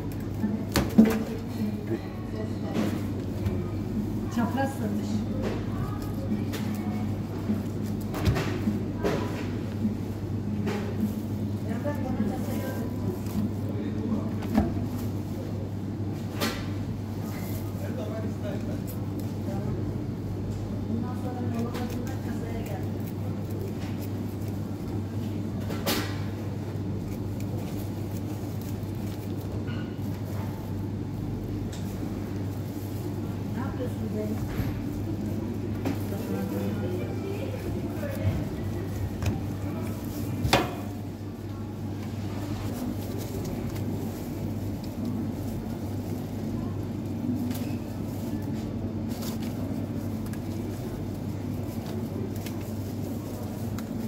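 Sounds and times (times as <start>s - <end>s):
low mechanical hum: 0.0s - 54.0s
handling and rustling: 21.1s - 54.0s.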